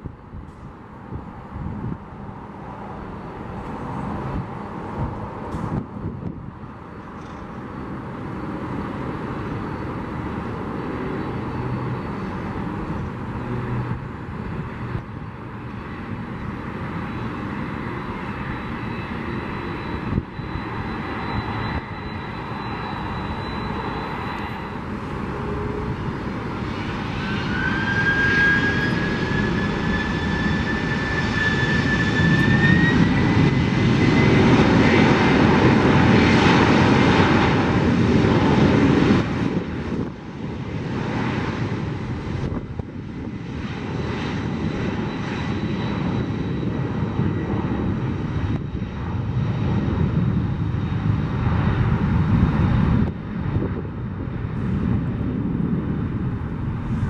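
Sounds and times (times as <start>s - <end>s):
jet engines running: 0.0s - 57.0s
thin whine rising in pitch: 56.3s - 57.0s.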